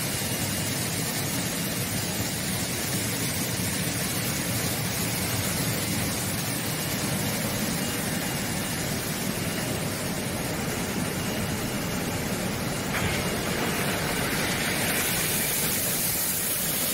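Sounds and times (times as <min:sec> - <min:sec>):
machinery running: 0:00.1 - 0:16.9
churning water and spray: 0:12.9 - 0:16.9.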